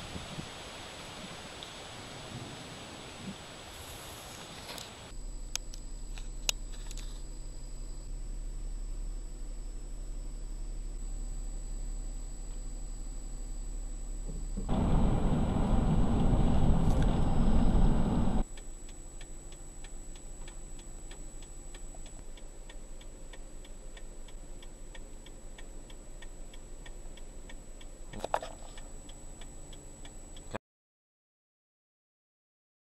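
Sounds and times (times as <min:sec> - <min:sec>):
thunder rumbling: 0:00.0 - 0:03.9, 0:14.7 - 0:18.4
faint high whine: 0:00.0 - 0:30.6.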